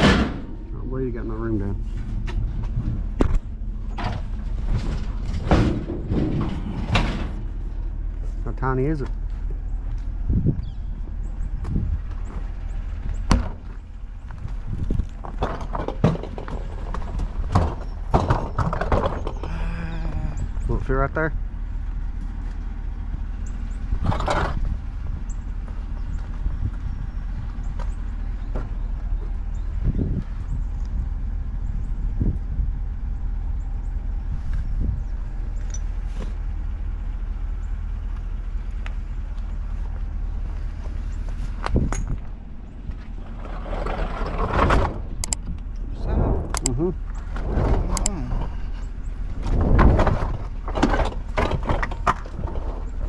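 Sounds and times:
truck engine idling: 0.0s - 53.0s
wind rumble on microphone: 0.0s - 53.0s
footsteps on pavement: 9.0s - 15.3s, 38.1s - 43.2s.

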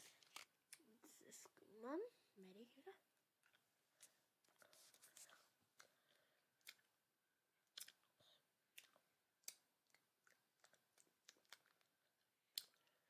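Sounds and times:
mouth clicks and smacks chewing: 3.4s - 6.9s, 7.6s - 13.0s.

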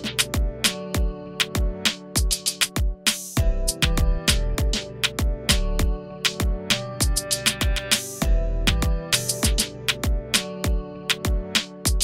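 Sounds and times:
deep kick drums: 0.4s - 11.5s
sharp percussion hits: 3.1s - 10.0s.

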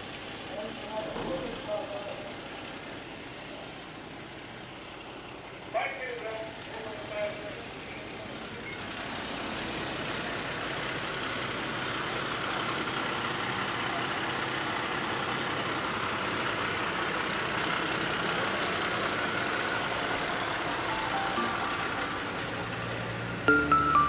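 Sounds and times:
hiss: 0.0s - 0.6s, 3.2s - 4.4s
engine running: 0.0s - 24.0s.

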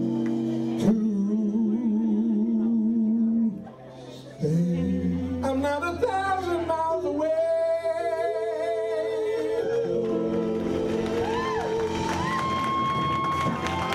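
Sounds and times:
band accompaniment: 0.0s - 1.1s, 9.7s - 13.9s
male vocal group singing harmony: 0.8s - 12.2s.

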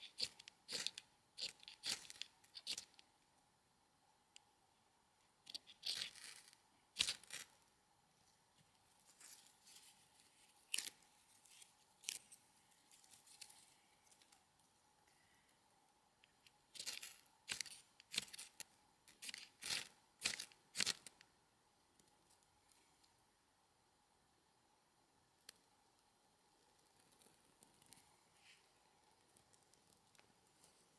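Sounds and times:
dry leaves torn and crinkled: 0.0s - 3.0s, 5.5s - 7.6s, 9.0s - 14.4s, 16.8s - 21.1s.

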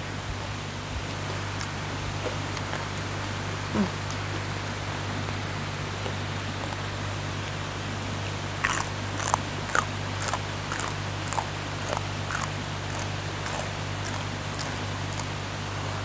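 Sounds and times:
crunchy vegetable being chewed: 1.5s - 4.5s, 6.0s - 6.9s, 8.6s - 16.0s.

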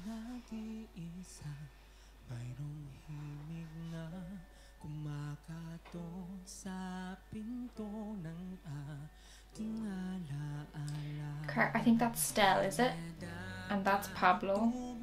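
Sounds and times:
man singing a slow ballad: 0.0s - 11.5s, 12.9s - 15.0s
singer breathing: 4.4s - 4.8s, 9.1s - 9.5s.

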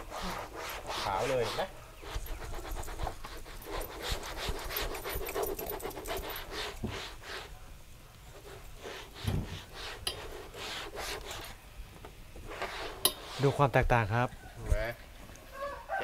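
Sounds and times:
cloth swishing on fiberglass: 0.0s - 7.5s, 8.4s - 11.6s, 12.4s - 13.7s.

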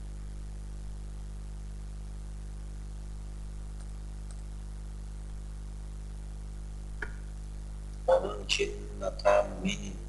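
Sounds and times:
low electrical hum: 0.0s - 10.0s
mouse clicks: 3.8s - 4.5s.

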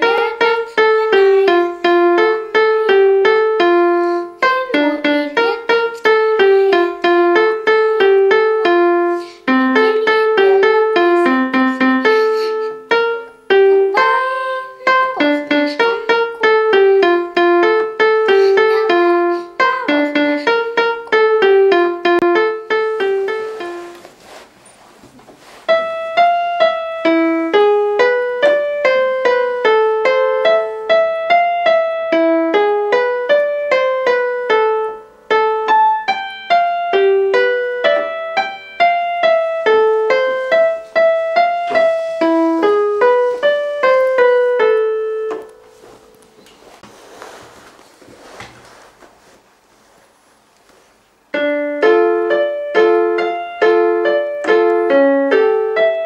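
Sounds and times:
electronic keyboard melody: 0.0s - 24.0s, 25.7s - 46.5s, 51.3s - 56.0s.

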